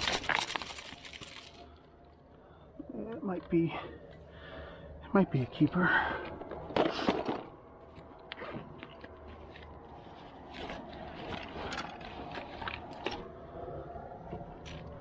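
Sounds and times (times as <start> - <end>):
rummaging through a backpack: 0.0 - 1.8, 6.2 - 13.4.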